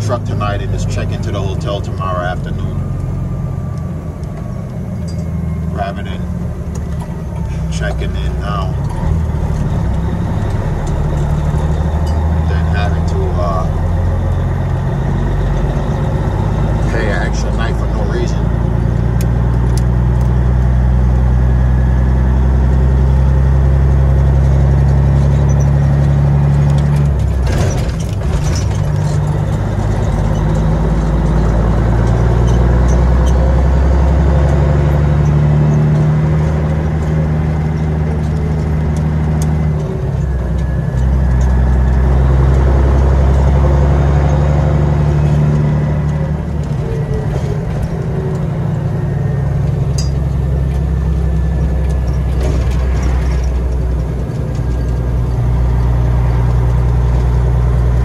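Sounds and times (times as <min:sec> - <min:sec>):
diesel truck engine from cab: 0:00.0 - 0:58.0.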